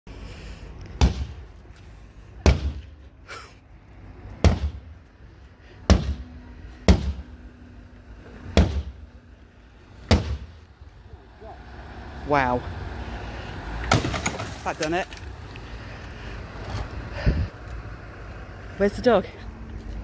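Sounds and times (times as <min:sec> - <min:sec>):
sledgehammer smashing windscreen: 0:13.9 - 0:15.0.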